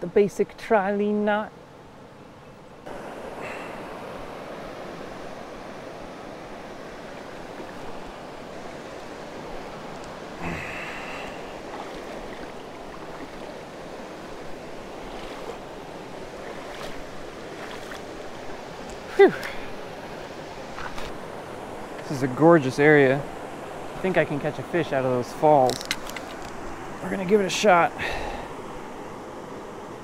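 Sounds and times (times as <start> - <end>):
water rushing over stones: 9.5 - 19.8.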